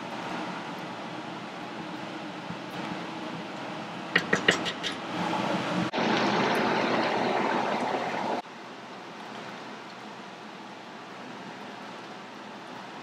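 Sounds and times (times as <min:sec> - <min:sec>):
stew simmering and bubbling: 0:00.2 - 0:08.5
wooden spoon clicking on metal pot: 0:04.2 - 0:05.0.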